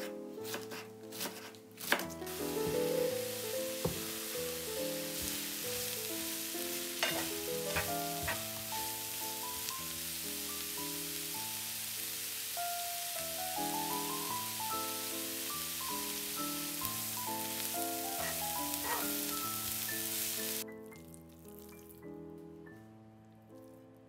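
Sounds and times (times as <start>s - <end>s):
knife chopping on wooden board: 0.5s - 2.9s, 3.8s - 4.1s
vegetables sizzling in a frying pan: 0.7s - 20.6s
spatula stirring in pan: 2.2s - 9.7s, 18.0s - 19.5s.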